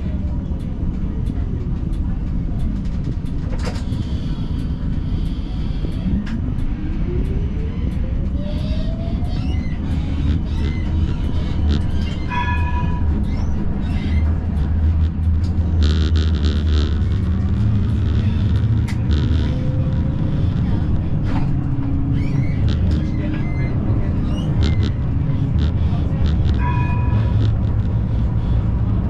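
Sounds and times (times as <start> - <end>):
tram rumbling on rails: 0.0 - 29.0
electric drive whining: 9.8 - 12.0, 14.3 - 29.0
short beeping tone: 24.5 - 28.2.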